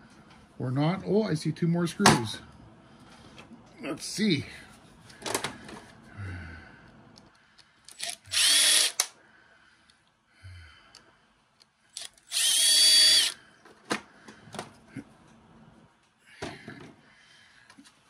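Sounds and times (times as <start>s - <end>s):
cordless drill whining: 8.0s - 9.1s, 12.0s - 13.4s.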